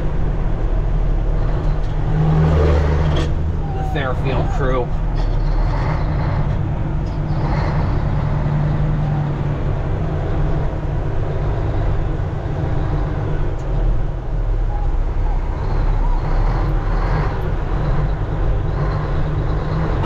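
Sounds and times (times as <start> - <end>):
truck engine drone: 0.0 - 20.0.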